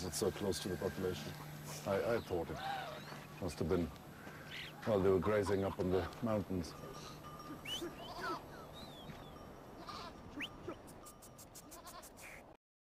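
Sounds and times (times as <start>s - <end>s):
sheep and goats bleating: 0.6s - 6.2s, 6.8s - 12.4s
short high chirps: 7.0s - 8.2s, 10.3s - 12.4s.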